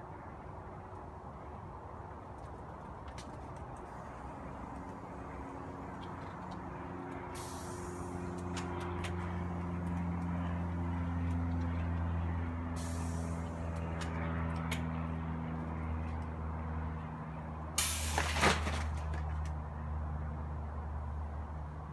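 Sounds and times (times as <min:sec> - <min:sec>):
steady low hum: 0:00.0 - 0:17.8
compressed air hissing: 0:07.3 - 0:08.3, 0:12.8 - 0:13.6, 0:17.8 - 0:18.3.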